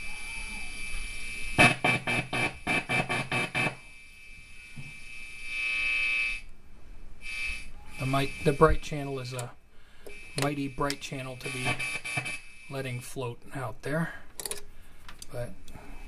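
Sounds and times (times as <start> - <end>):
amplifier buzz: 0.0 - 6.6, 7.2 - 13.0
amplifier crackling: 0.0 - 13.0.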